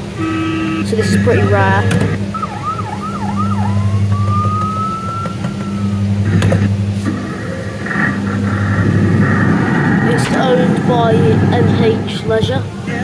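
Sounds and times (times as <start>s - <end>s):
low hum of ride: 0.0s - 13.0s
rising electronic siren tone: 0.2s - 10.1s
buzzy pulsing electronic effect: 0.2s - 12.1s.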